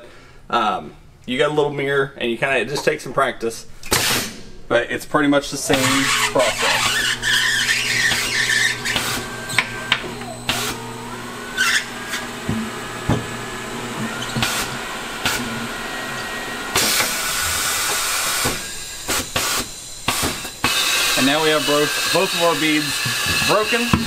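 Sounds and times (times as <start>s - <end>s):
tire changer motor humming: 5.7s - 24.0s
loud hiss of air: 16.7s - 23.9s.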